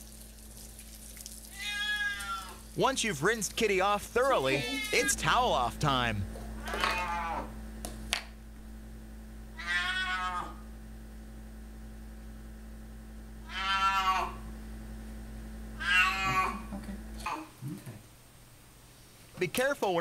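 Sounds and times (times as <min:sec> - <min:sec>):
cat meowing: 0:01.5 - 0:02.6, 0:04.4 - 0:05.2, 0:06.6 - 0:07.5, 0:09.6 - 0:10.6, 0:13.4 - 0:14.4, 0:15.8 - 0:16.7.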